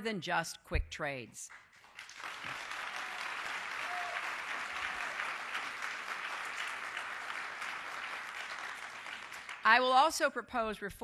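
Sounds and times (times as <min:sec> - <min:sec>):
audience applauding: 0:01.5 - 0:09.7.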